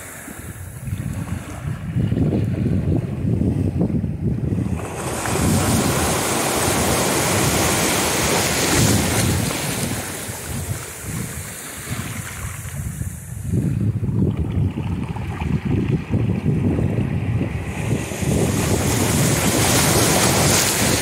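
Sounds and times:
wind buffeting microphone: 0.2s - 21.0s
wave washing up beach: 4.4s - 13.8s, 14.9s - 21.0s.

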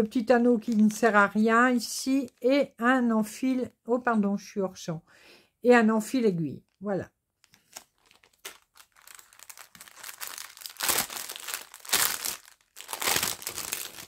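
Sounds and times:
plastic bags crinkling: 0.6s - 1.3s, 7.4s - 14.0s.

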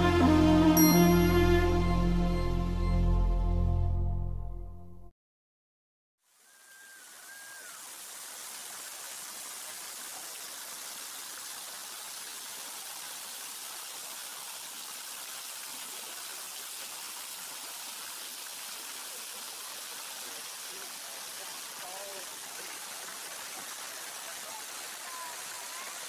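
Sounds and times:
high whistled note: 0.0s - 4.0s
waterfall splashing over rocks: 6.3s - 26.0s.

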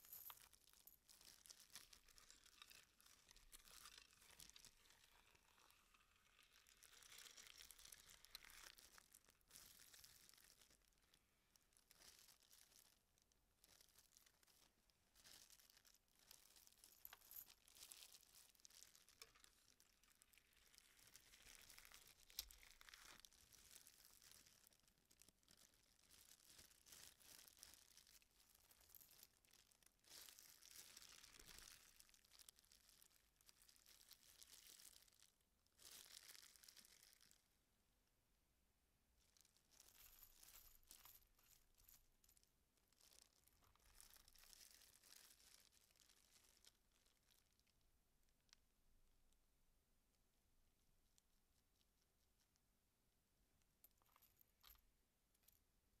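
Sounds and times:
plastic glove crinkling: 11.8s - 16.8s, 17.7s - 37.3s, 43.0s - 47.8s.

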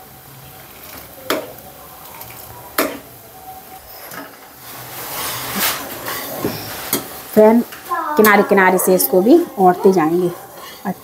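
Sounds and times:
spoon knocking against pan: 2.8s - 3.1s
ladle scraping and stirring: 3.9s - 7.2s.

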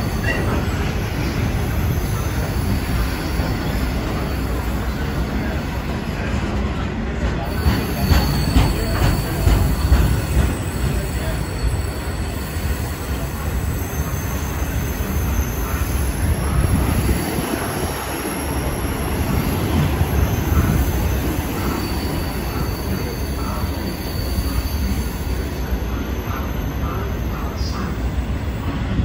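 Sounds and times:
train wheels rumbling on rail: 0.0s - 29.0s.

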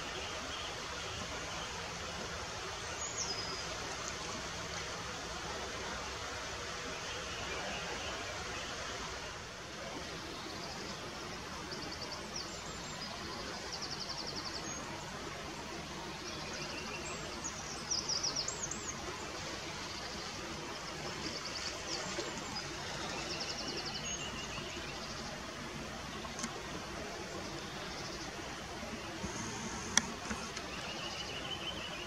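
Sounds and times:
river water rushing: 0.0s - 32.0s
songbirds trilling: 10.0s - 32.0s.

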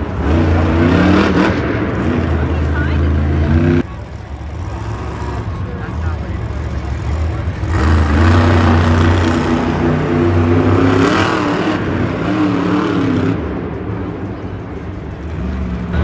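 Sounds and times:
monster truck engine revving: 0.0s - 16.0s.

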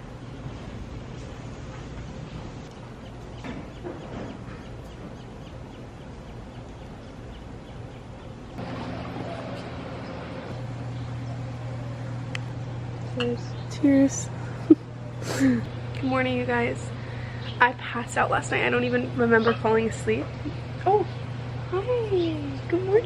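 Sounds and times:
constant low hum: 0.0s - 23.0s.

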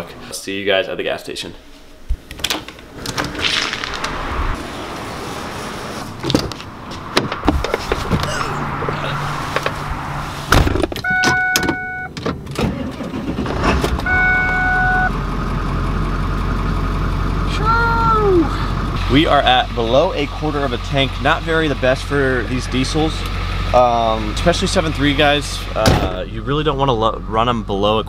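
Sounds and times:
truck door shutting: 10.5s - 14.6s, 25.8s - 26.3s
diesel engine starting and idling: 10.7s - 28.0s
warning chime: 14.1s - 15.1s.

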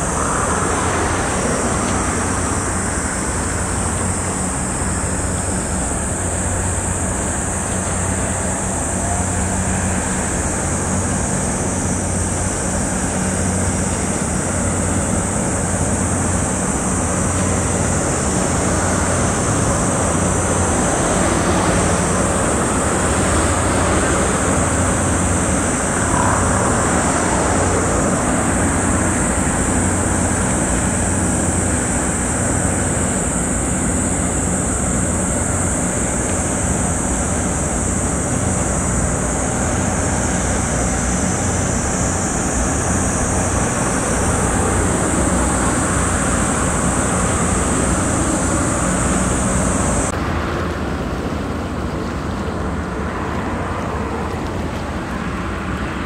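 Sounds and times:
ship machinery hum and rumble: 0.0s - 56.0s
water noise: 0.0s - 56.0s
wind: 0.0s - 56.0s.

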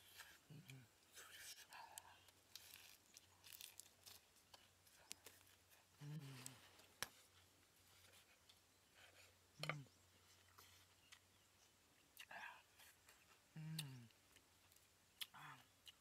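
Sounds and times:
crunchy chewing: 0.0s - 16.0s
man humming: 6.0s - 6.7s, 13.5s - 14.1s.

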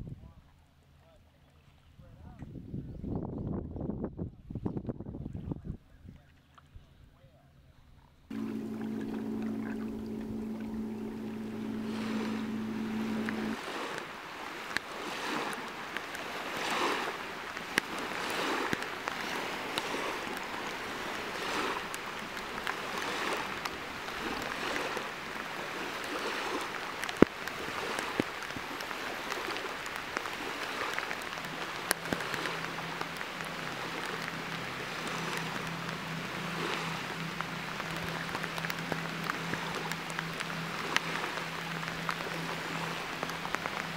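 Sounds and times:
low steady hum: 8.3s - 13.6s
waves lapping on sandy shore: 8.3s - 43.9s.

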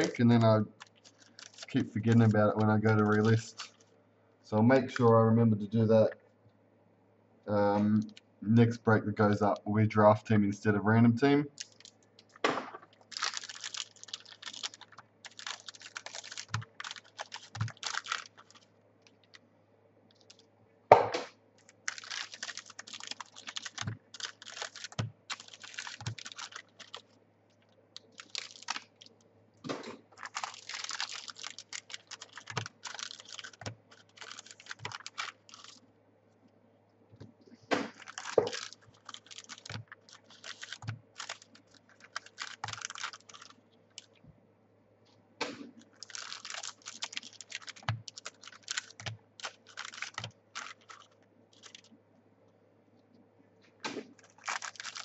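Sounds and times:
wrappers crinkling: 0.0s - 3.9s, 11.5s - 19.5s, 20.1s - 20.4s, 21.6s - 29.2s, 30.1s - 35.8s, 37.8s - 44.2s, 45.8s - 51.9s, 54.0s - 55.0s.

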